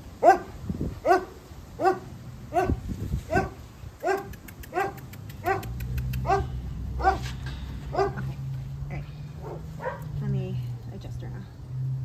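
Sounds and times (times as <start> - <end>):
dog barking: 0.2 - 8.3, 9.4 - 10.1.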